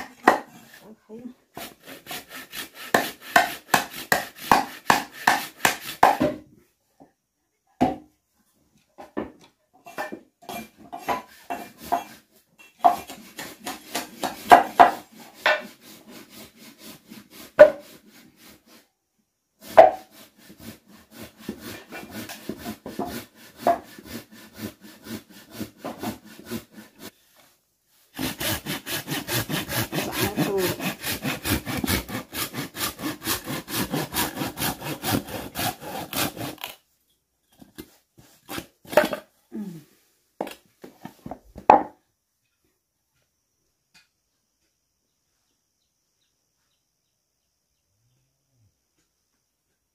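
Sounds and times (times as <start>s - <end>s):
hand saw cutting wood: 0.0s - 6.3s, 9.8s - 18.9s, 19.6s - 27.2s, 28.1s - 36.8s, 37.8s - 39.7s.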